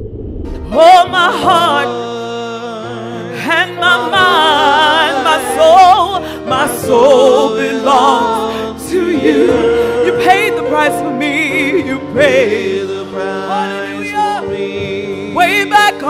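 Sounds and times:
woman singing with vibrato: 0.7 - 2.0, 9.0 - 12.2.

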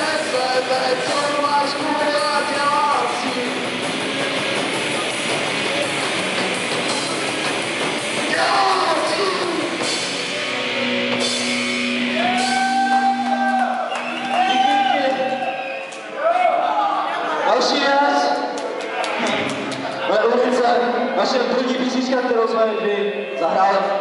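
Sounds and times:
distorted electric guitar: 0.0 - 13.8
bass guitar: 0.0 - 14.6
drums: 0.0 - 16.1
person singing: 8.3 - 9.8.

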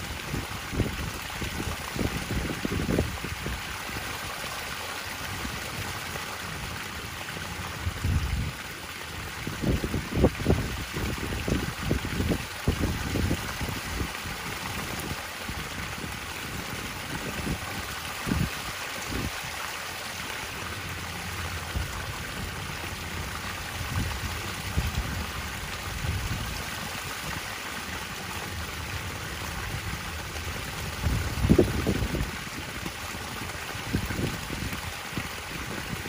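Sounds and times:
water splashing into pool: 0.0 - 36.0
wind buffeting microphone: 0.1 - 4.4, 7.6 - 19.6, 20.7 - 36.0.

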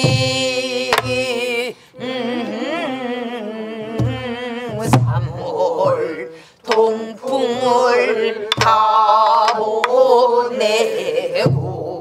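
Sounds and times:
group singing folk song with vibrato: 0.0 - 12.0
barrel drum strokes: 4.0 - 6.2, 8.5 - 9.9.

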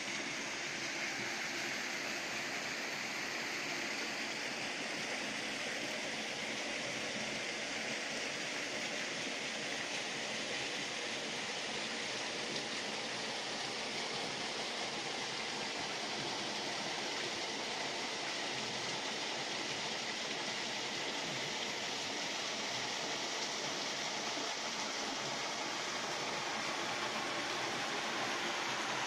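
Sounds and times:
stream flowing over stones: 0.0 - 29.0.

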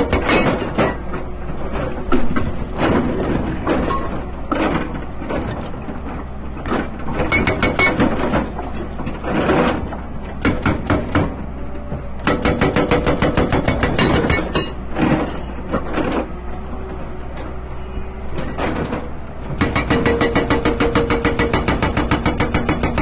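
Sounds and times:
hydraulic rock breaker hammering: 0.0 - 5.9, 6.6 - 16.4, 18.4 - 23.0.

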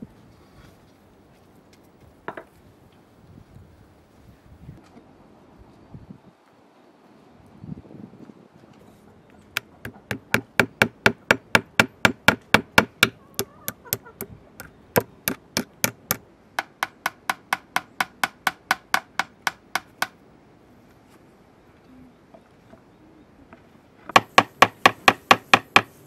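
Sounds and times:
hammer tapping nails: 9.6 - 20.2.

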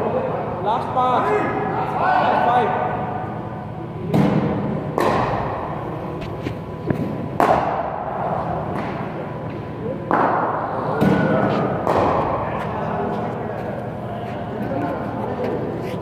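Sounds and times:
cricket balls striking bats: 4.1 - 12.7.

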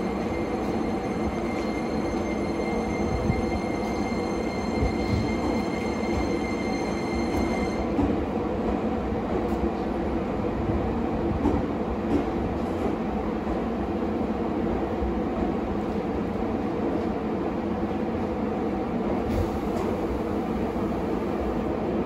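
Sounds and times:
electric train rumbling: 0.0 - 22.0.

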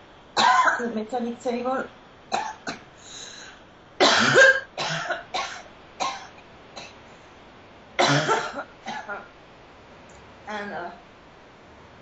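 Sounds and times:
woman coughing: 0.4 - 0.9, 4.0 - 7.0, 8.0 - 9.3.

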